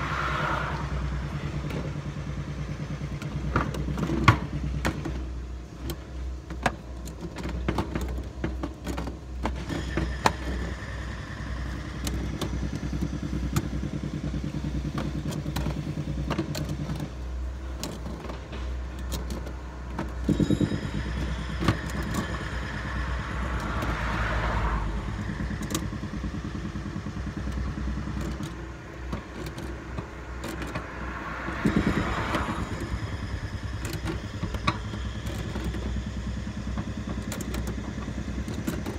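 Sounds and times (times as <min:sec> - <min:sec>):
low engine rumble: 0:00.0 - 0:38.9
clatter of pliers and plastic fittings: 0:03.2 - 0:10.9, 0:14.7 - 0:24.0, 0:25.2 - 0:38.9.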